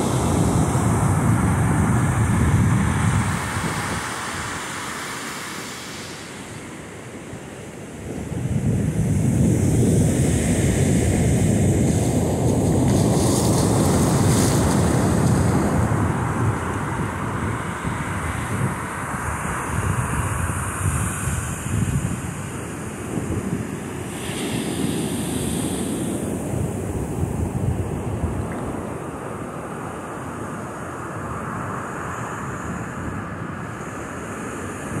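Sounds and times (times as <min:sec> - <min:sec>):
wind buffeting microphone: 0:00.0 - 0:04.8, 0:07.9 - 0:29.6
surf washing up sand: 0:00.0 - 0:35.0.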